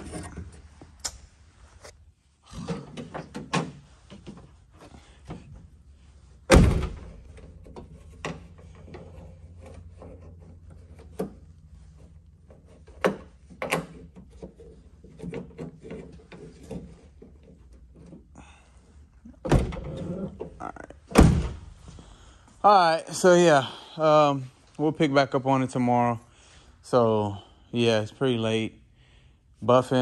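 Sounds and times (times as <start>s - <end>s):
car door slamming shut: 6.5s - 7.1s.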